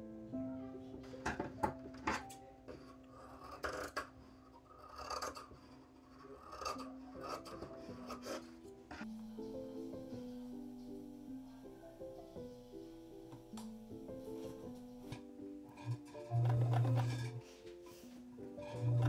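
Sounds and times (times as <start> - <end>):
soft piano music: 0.0 - 4.8, 5.4 - 19.0
scissors cutting fabric: 3.2 - 4.1, 4.8 - 9.1.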